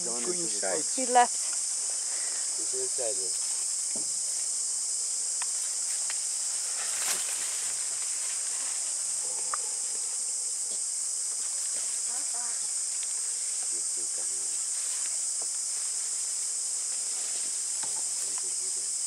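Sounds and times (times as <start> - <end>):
insect chorus: 0.0 - 19.0.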